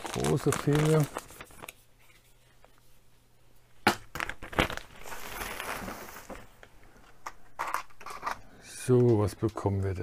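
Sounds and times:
plastic packaging crackling: 0:00.0 - 0:02.1, 0:04.1 - 0:06.7.

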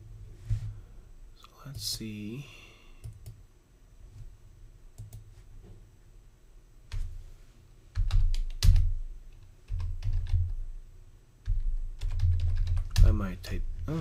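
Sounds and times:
computer keyboard typing: 0:08.0 - 0:08.9, 0:09.7 - 0:10.6, 0:11.4 - 0:13.3.

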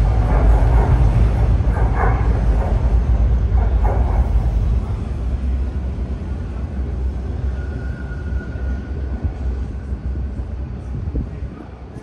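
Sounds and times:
low outdoor rumble: 0:00.0 - 0:07.5.

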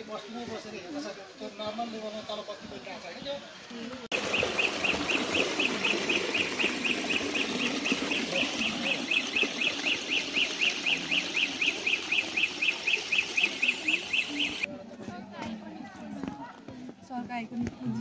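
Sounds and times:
rapid high chirps: 0:04.1 - 0:14.7
water pouring down rocky channel: 0:04.1 - 0:14.7.

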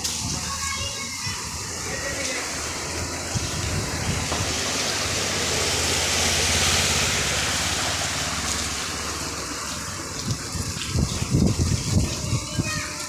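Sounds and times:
water spray hissing: 0:00.0 - 0:13.0
motorcycle engine hum: 0:01.8 - 0:11.8.

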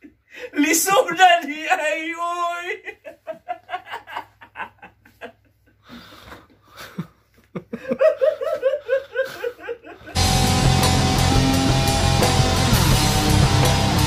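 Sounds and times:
man laughing hard: 0:01.7 - 0:05.8, 0:06.7 - 0:10.4.

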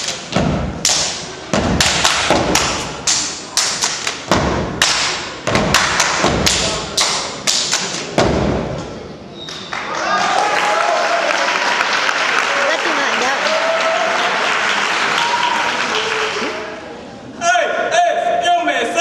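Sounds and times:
stomping and clapping in unison: 0:00.0 - 0:08.8.

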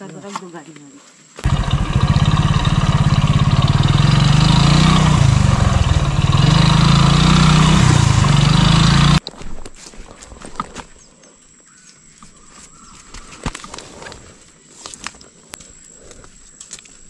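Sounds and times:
small motorcycle engine running: 0:01.4 - 0:09.2.

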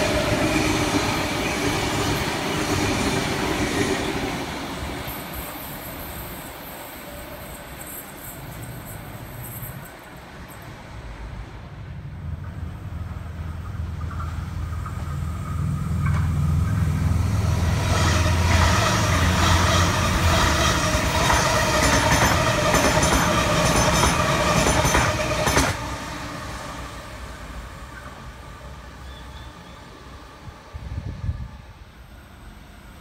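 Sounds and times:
train rumble: 0:00.0 - 0:33.0
train wheels clattering on rails: 0:12.3 - 0:17.1, 0:17.9 - 0:25.9.

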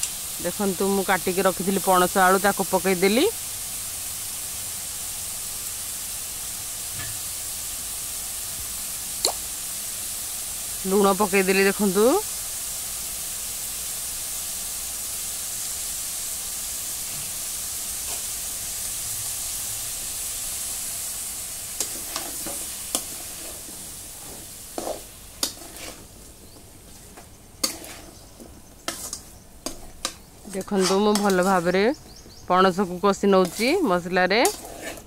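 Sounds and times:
food sizzling in a pan: 0:00.0 - 0:35.0
steel spoon scraping a pan: 0:18.0 - 0:18.3, 0:21.8 - 0:26.1, 0:26.9 - 0:31.8, 0:32.6 - 0:35.0.

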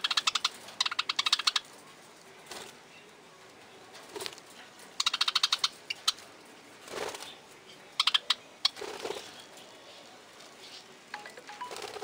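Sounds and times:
budgerigars chirping: 0:00.0 - 0:01.6, 0:05.0 - 0:06.2, 0:08.0 - 0:08.8
budgerigars warbling chatter: 0:05.0 - 0:06.2, 0:08.0 - 0:08.8.

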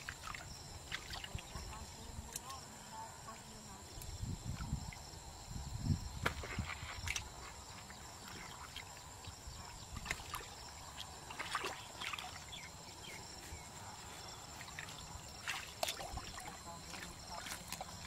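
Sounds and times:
hands splashing in muddy water: 0:14.6 - 0:18.0.

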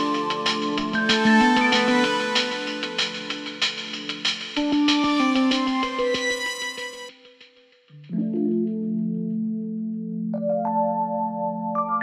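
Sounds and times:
instrumental music with steady beat: 0:00.0 - 0:10.1.

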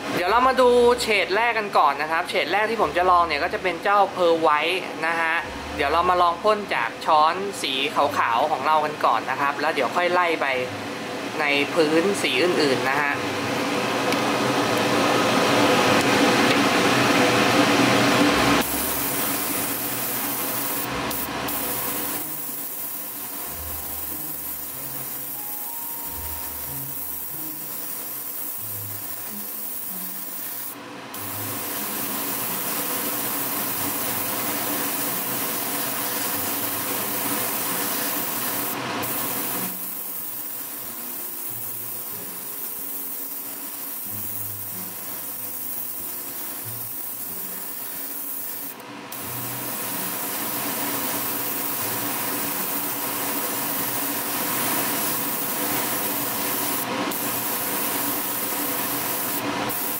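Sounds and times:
airbrush hissing: 0:18.6 - 0:59.9.

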